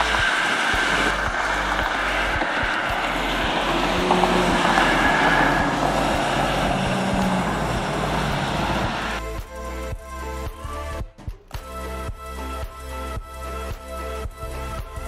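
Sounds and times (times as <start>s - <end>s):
pickup truck driving by: 0.0s - 9.2s
road traffic: 0.0s - 9.2s
music: 0.0s - 15.0s.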